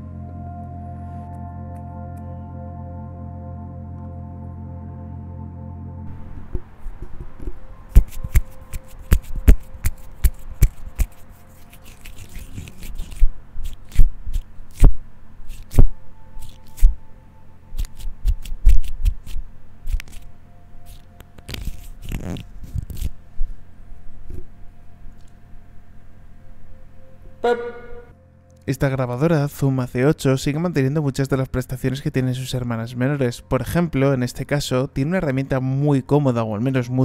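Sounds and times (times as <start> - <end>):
fingers tapping and scraping recorder: 6.2 - 14.9, 27.4 - 28.2.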